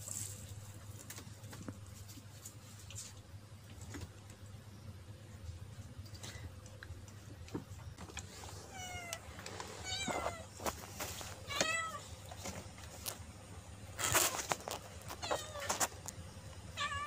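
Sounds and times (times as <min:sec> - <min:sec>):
cat meowing: 0:11.5 - 0:12.1, 0:15.2 - 0:15.8, 0:16.8 - 0:17.0.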